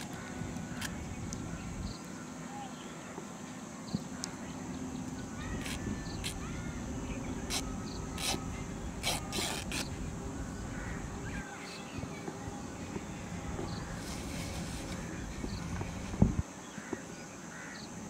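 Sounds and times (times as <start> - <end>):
high insect drone: 0.0 - 18.0
cloth rustling: 13.8 - 16.4.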